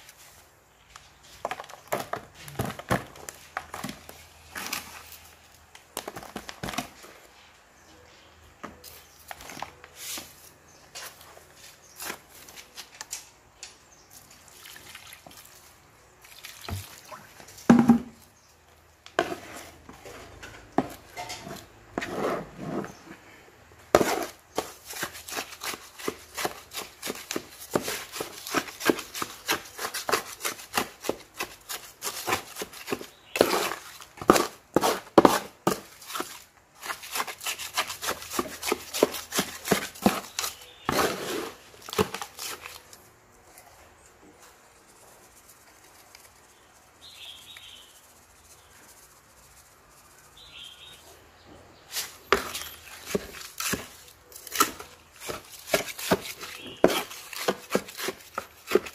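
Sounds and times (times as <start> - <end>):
trowel scraping wet soil: 1.2 - 5.4, 19.0 - 23.0, 23.9 - 43.0, 51.9 - 58.9.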